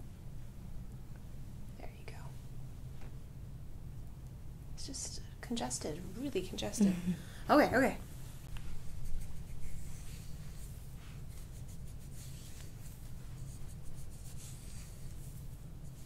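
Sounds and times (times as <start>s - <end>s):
low steady hum: 0.0s - 16.0s
hands scratching through hair: 8.4s - 16.0s.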